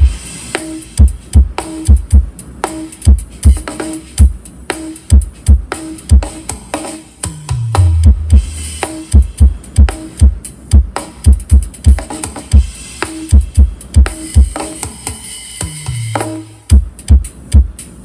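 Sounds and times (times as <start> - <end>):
dance music with kick drum: 0.0 - 2.4, 3.0 - 4.4, 5.0 - 6.7, 7.5 - 14.9, 16.7 - 17.8.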